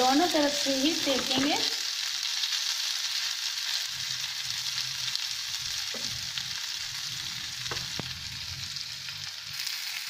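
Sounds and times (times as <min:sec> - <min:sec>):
cutlets sizzling in oil: 0:00.0 - 0:10.0.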